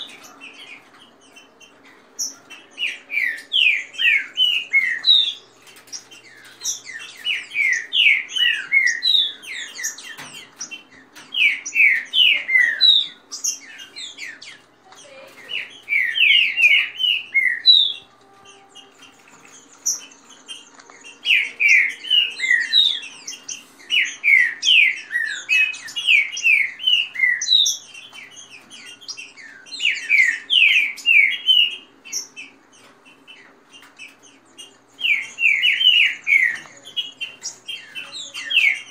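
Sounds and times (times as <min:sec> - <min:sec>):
birds singing whistled notes: 0:00.0 - 0:38.9.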